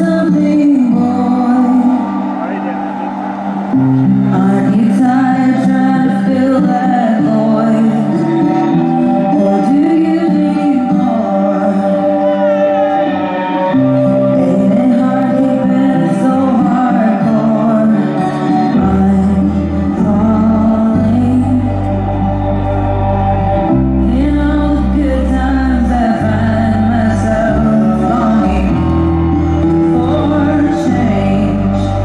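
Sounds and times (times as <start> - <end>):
person singing: 0.0 - 32.0
sustained bass notes: 18.8 - 32.0.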